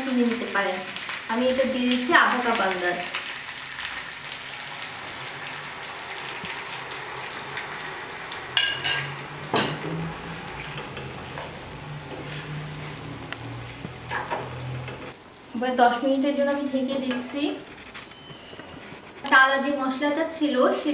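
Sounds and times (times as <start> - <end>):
chicken sizzling in a frying pan: 0.0 - 17.5.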